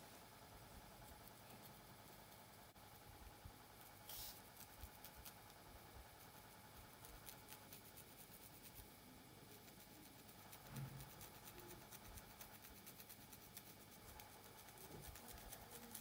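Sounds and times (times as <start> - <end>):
fingernails scratching scalp: 4.0 - 5.5, 9.5 - 16.0.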